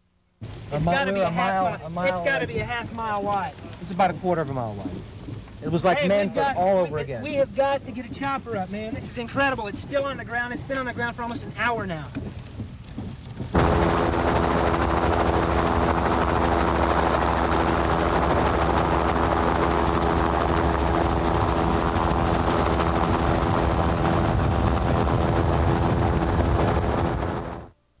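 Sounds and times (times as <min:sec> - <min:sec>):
helicopter rotor and engine drone: 0:13.5 - 0:27.7
high whine: 0:13.6 - 0:27.8.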